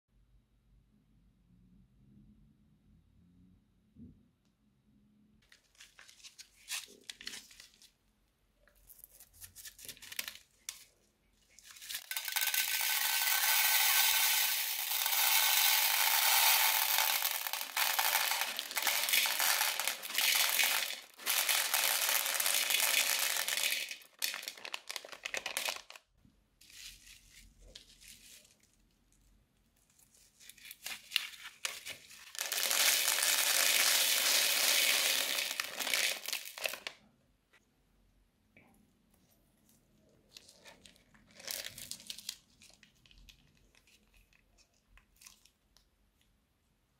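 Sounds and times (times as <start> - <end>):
beads pouring into plastic bowl: 11.5 - 28.5, 30.5 - 37.0, 40.4 - 44.0
plastic bag crinkling: 11.5 - 28.9, 30.1 - 37.0, 40.3 - 45.5.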